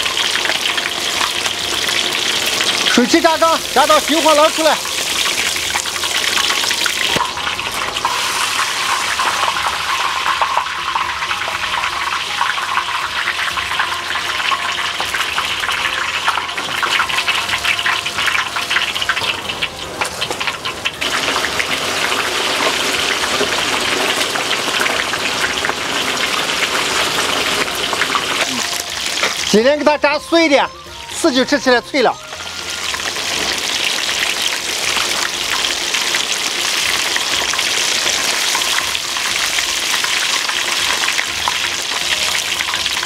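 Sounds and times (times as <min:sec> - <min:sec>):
fish deep-frying in oil: 0:00.0 - 0:43.0
oil crackling pops: 0:22.6 - 0:29.6.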